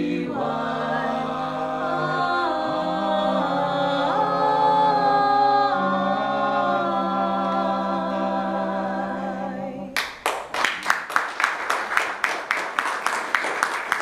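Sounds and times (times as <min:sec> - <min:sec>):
a cappella choir singing: 0:00.0 - 0:10.0
applause: 0:10.0 - 0:14.0.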